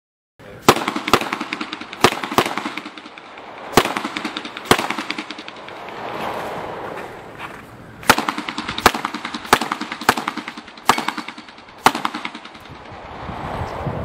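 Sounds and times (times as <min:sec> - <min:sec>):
loud gunshots: 0:00.6 - 0:05.7, 0:08.0 - 0:12.7.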